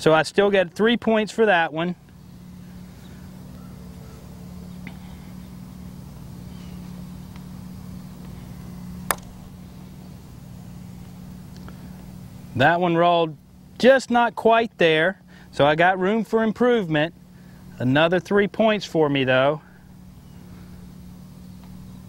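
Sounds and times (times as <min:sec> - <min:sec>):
steady low hum: 0:00.0 - 0:22.0
putter striking golf ball: 0:08.9 - 0:09.6.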